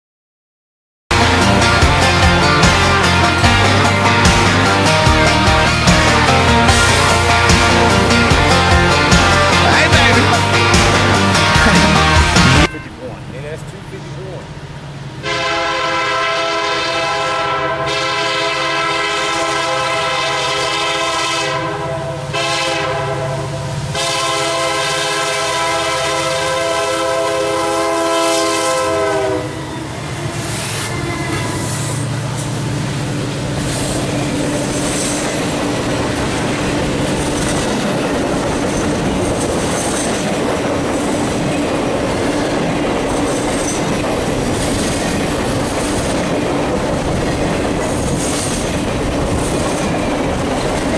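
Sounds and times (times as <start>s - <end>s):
locomotive engine drone: 1.1s - 50.9s
trailers rumbling and clacking on rails: 1.1s - 50.9s
locomotive air horn blasts: 15.2s - 29.7s.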